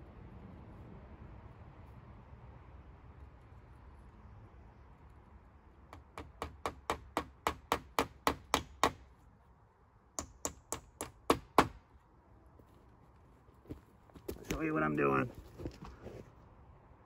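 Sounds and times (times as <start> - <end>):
hammer striking nails into wood: 5.9 - 9.1, 10.2 - 11.8.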